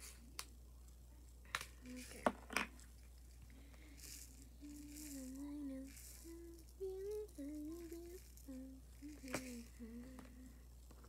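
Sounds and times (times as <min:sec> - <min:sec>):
small pieces poured from plastic cup: 0:03.9 - 0:09.7
girl humming: 0:04.0 - 0:10.6.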